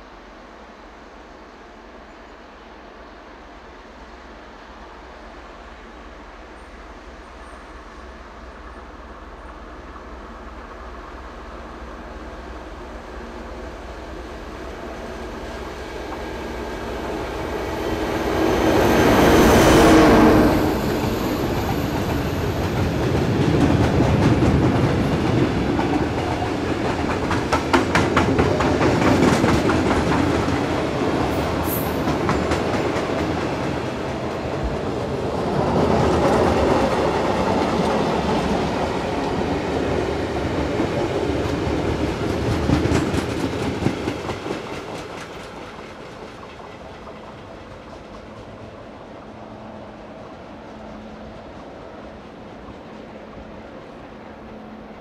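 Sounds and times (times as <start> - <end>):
diesel locomotive passing: 0.0 - 55.0
train wheels clickety-clack: 16.0 - 49.6.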